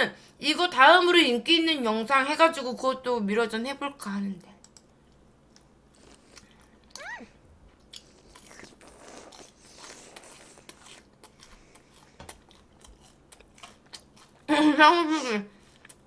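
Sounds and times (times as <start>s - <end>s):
crunchy bites and chewing: 7.8s - 14.5s.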